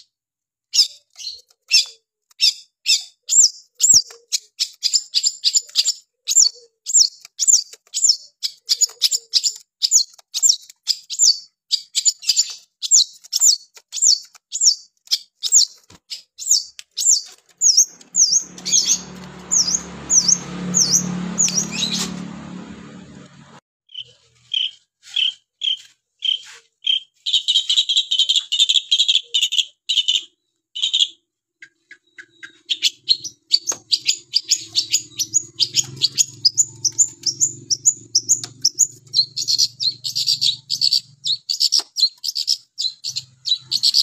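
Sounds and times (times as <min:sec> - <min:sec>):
shrike singing: 0:16.4 - 0:22.3.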